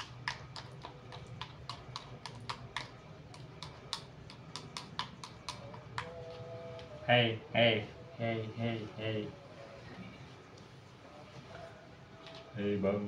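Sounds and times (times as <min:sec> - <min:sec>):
plastic spoon scraping bowl: 0:00.0 - 0:06.9.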